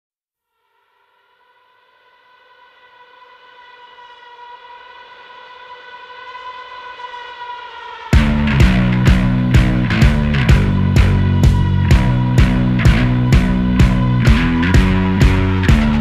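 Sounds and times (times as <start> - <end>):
rock music with drums and guitar: 8.2 - 16.0.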